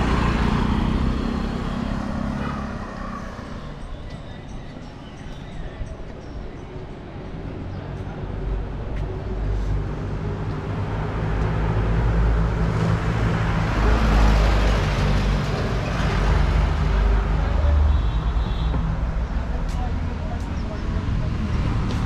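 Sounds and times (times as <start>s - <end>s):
traffic noise: 0.0s - 22.0s.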